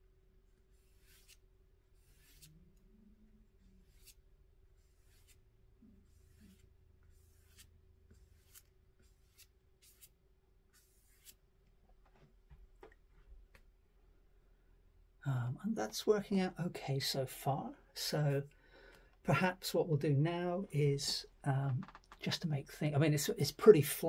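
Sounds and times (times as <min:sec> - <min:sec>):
brush swishing on paper: 0:00.7 - 0:01.4, 0:02.0 - 0:02.5, 0:04.8 - 0:05.4, 0:06.0 - 0:11.4.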